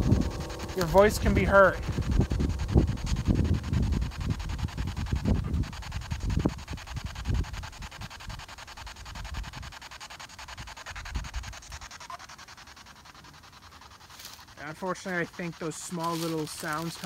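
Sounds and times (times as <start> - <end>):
radio static sweeping: 0.0 - 6.2
low rumbling and thumping: 0.0 - 9.7.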